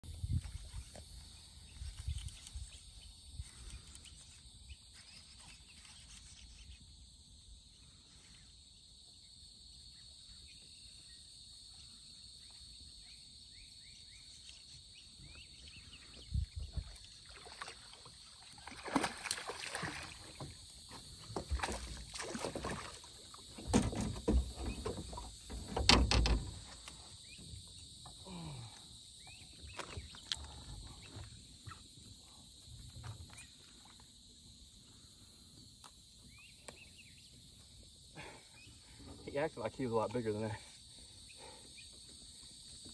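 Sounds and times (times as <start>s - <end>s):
insects chorus: 0.1s - 42.9s
fish splashing at water surface: 17.2s - 20.5s.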